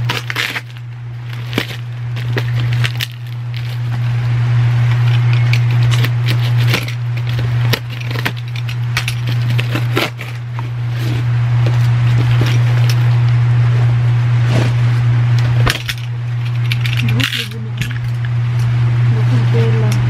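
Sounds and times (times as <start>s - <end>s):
cardboard and tape tearing: 0.0s - 4.3s, 4.9s - 13.3s
loud steady low hum: 0.0s - 20.0s.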